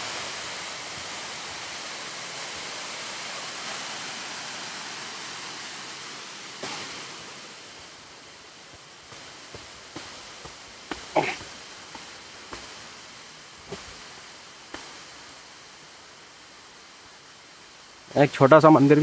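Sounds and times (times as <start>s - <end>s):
waterfall roaring: 0.0s - 19.0s
footsteps on rock steps: 8.6s - 15.2s.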